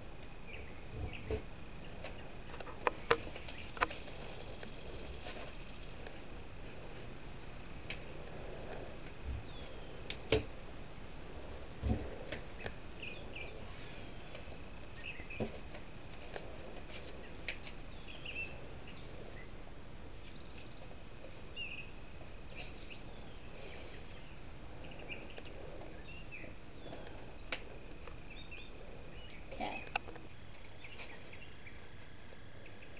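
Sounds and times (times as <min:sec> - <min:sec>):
faint bird chirps: 0:09.4 - 0:10.1, 0:12.5 - 0:15.5, 0:17.1 - 0:30.0, 0:30.7 - 0:32.9.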